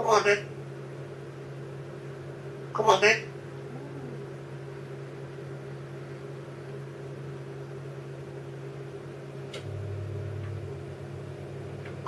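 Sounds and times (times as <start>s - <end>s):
appliance electrical hum: 0.0s - 12.0s
lower hum: 3.5s - 4.8s, 9.6s - 12.0s
appliance click: 9.5s - 9.8s.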